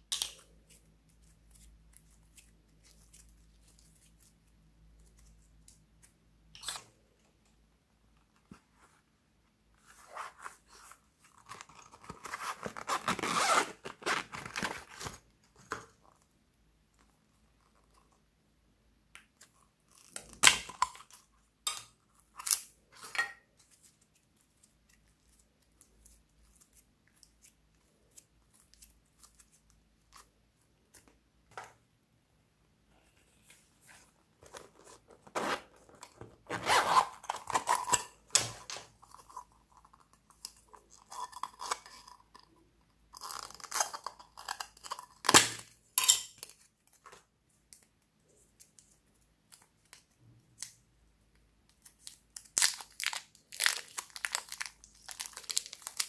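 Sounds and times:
rubber and plastic crackling: 0:51.7 - 0:56.0
crackling and tearing: 0:51.8 - 0:56.0.

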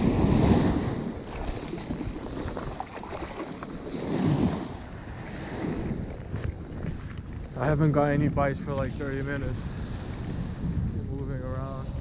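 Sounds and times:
ocean surf washing up beach: 0:00.0 - 0:06.2
wind on microphone: 0:00.0 - 0:12.0.

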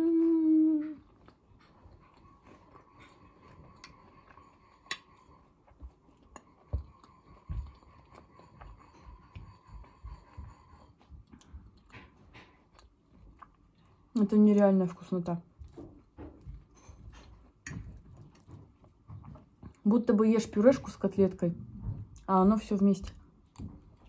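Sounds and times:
woman humming: 0:00.0 - 0:01.1
woman chewing: 0:00.0 - 0:14.7, 0:15.7 - 0:19.8.

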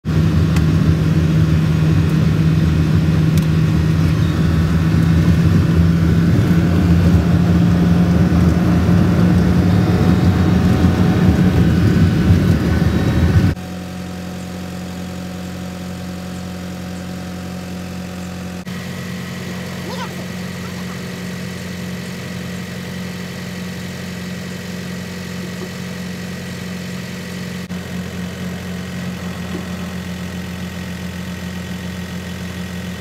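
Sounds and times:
road noise: 0:00.0 - 0:13.6, 0:18.6 - 0:31.4
engine idling: 0:00.0 - 0:33.0
vehicle engine running while driving: 0:00.0 - 0:33.0.

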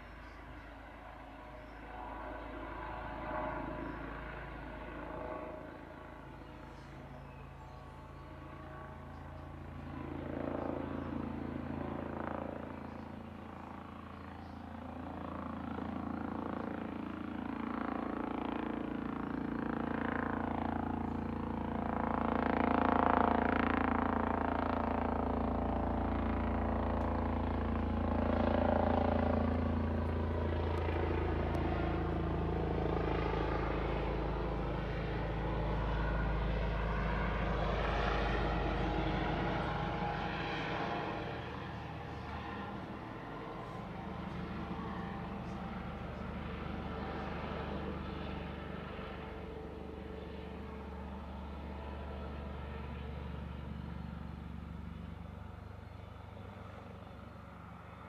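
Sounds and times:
helicopter turbine and rotor drone: 0:00.0 - 0:58.0.

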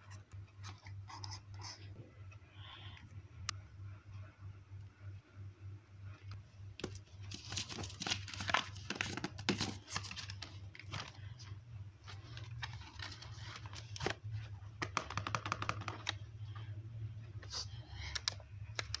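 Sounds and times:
low steady hum: 0:00.0 - 0:19.0
paper crinkling and rustling: 0:06.8 - 0:15.1.

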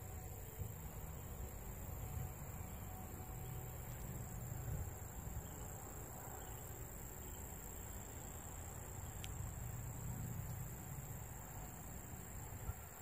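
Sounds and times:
insects trilling: 0:00.0 - 0:13.0
faint tick: 0:09.2 - 0:09.4.

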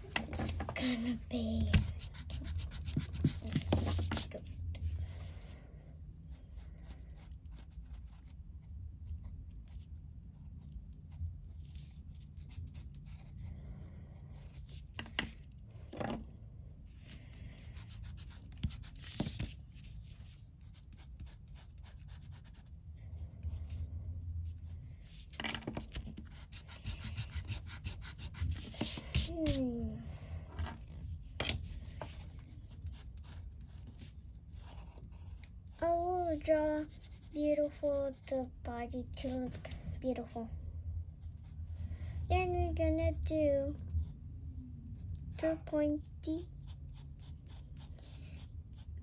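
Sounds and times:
pencil scratching on paper: 0:01.9 - 0:04.4, 0:06.3 - 0:13.5, 0:14.3 - 0:15.0, 0:17.7 - 0:25.3, 0:26.0 - 0:29.6, 0:31.6 - 0:38.4, 0:45.0 - 0:48.9.

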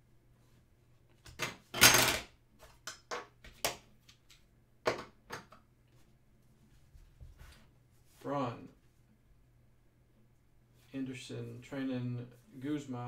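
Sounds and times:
cards rustling and tapping: 0:02.6 - 0:06.0.

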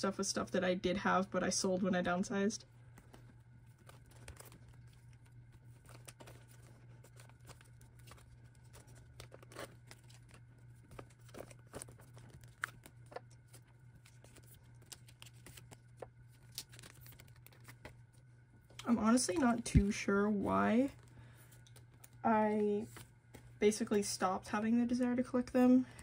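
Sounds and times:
low hum: 0:00.0 - 0:26.0
plastic pages rustling and crinkling: 0:02.8 - 0:23.6
page turning: 0:02.9 - 0:18.1.

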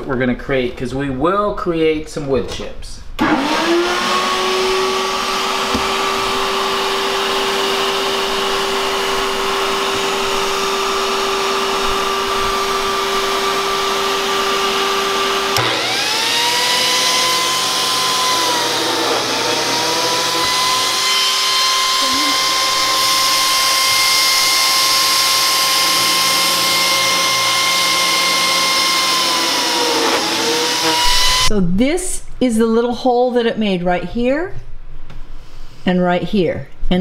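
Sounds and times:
biscuit joiner blade cutting wood: 0:03.2 - 0:31.5
shop vacuum whining: 0:03.2 - 0:31.5.

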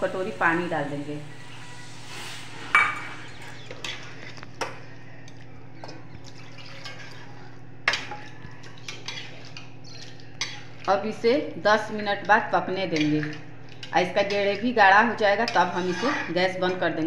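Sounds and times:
steady low hum: 0:00.0 - 0:17.0
curry frying: 0:06.1 - 0:16.2.

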